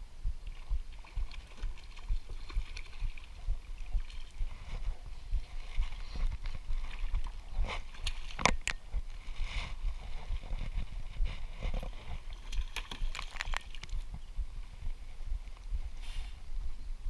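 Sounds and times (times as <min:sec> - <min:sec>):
wind rumble on microphone: 0:00.0 - 0:17.0
sharp knocks and splashes: 0:00.4 - 0:09.0, 0:11.6 - 0:14.2
water slapping against kayak hull: 0:00.9 - 0:04.7.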